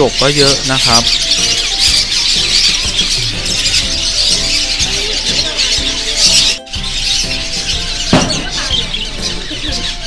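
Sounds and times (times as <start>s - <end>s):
background music: 0.0s - 10.0s
caged birds chirping: 0.0s - 10.0s.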